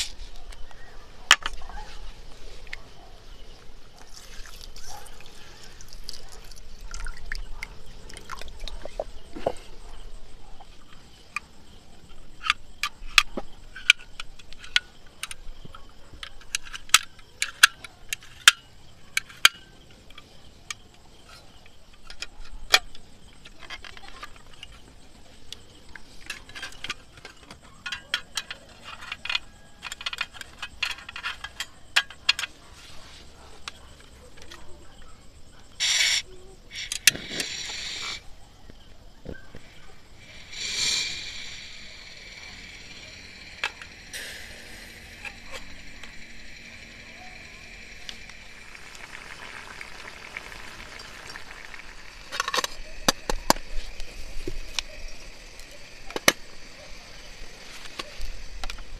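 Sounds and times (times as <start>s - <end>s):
water sounds: 48.0s - 53.0s.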